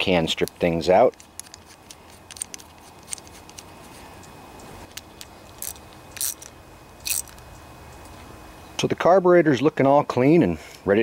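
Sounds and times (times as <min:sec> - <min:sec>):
small metal clicks: 0:00.4 - 0:08.1.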